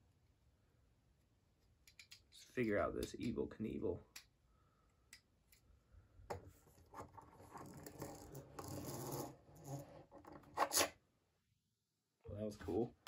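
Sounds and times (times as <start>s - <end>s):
small plastic clicks: 1.6s - 2.4s
plastic toy scratching and rubbing: 6.6s - 11.0s.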